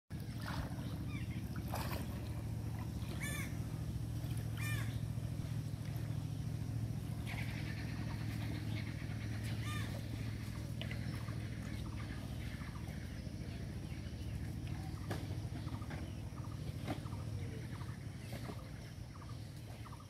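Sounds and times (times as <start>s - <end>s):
steady low hum: 0.1s - 20.0s.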